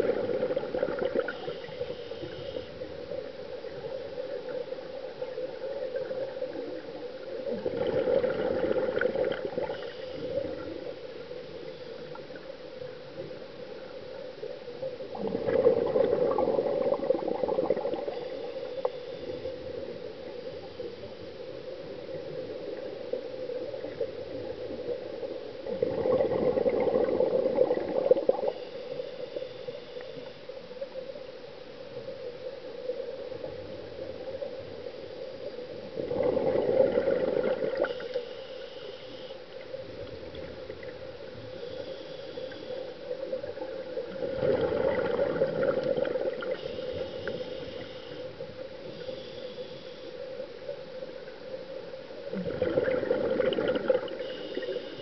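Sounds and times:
underwater exhale bubbling: 0:00.0 - 0:03.1, 0:07.4 - 0:10.9, 0:15.0 - 0:19.9, 0:23.6 - 0:29.7, 0:35.8 - 0:38.4, 0:39.9 - 0:49.9, 0:52.2 - 0:55.0
steady hum: 0:08.7 - 0:55.0.

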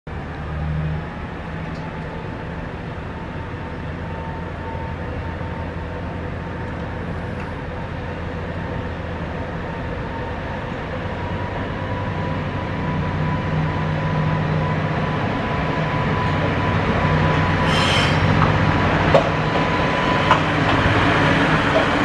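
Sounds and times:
diesel train engines droning: 0:00.1 - 0:22.0.

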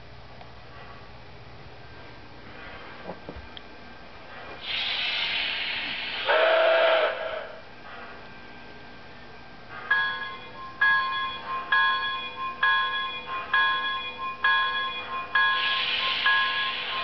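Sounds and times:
model train bell ringing: 0:09.9 - 0:17.0.

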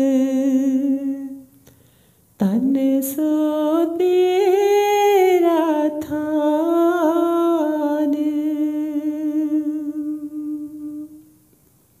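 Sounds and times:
person humming a held note: 0:07.2 - 0:11.4.

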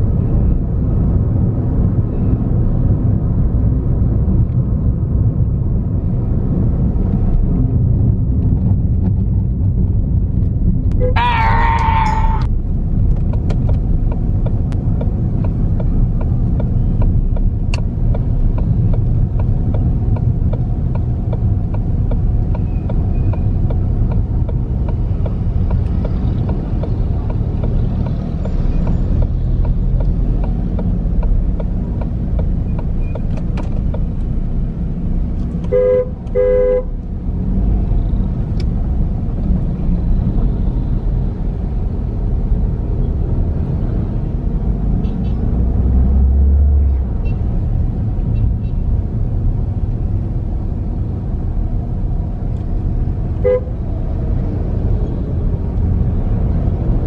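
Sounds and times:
car engine and road rumble: 0:00.0 - 0:57.0
vehicle horn beeping: 0:35.7 - 0:36.9, 0:53.4 - 0:53.8.

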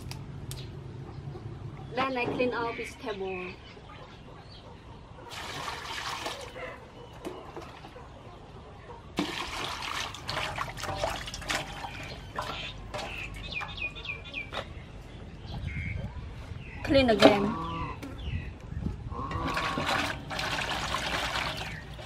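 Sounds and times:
water pouring into metal basin: 0:05.3 - 0:06.5, 0:09.2 - 0:13.3, 0:19.4 - 0:22.0
water splashing and sloshing: 0:05.3 - 0:08.1, 0:09.1 - 0:14.7, 0:19.1 - 0:22.0.

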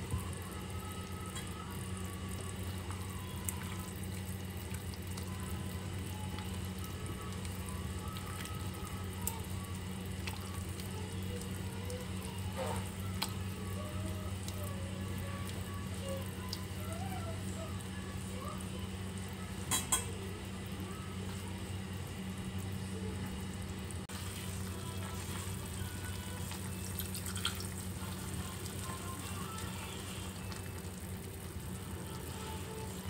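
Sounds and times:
soup bubbling: 0:00.0 - 0:20.0, 0:24.0 - 0:33.0
gas burner hum: 0:00.0 - 0:33.0.

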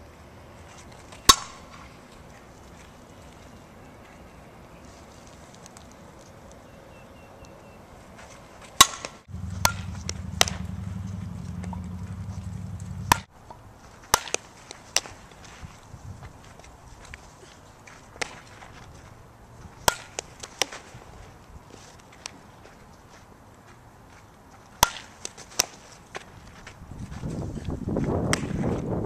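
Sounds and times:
softball bat cracks: 0:01.1 - 0:02.0, 0:08.6 - 0:13.3, 0:14.0 - 0:15.4, 0:18.1 - 0:18.7, 0:19.8 - 0:20.9, 0:24.8 - 0:26.3
steady low hum: 0:05.9 - 0:21.8.

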